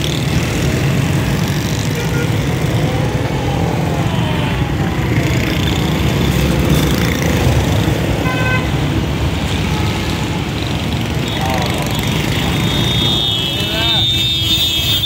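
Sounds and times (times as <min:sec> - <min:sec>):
motorcycles and cars: 0:00.0 - 0:15.0
horn honk: 0:08.2 - 0:08.8, 0:12.4 - 0:15.0.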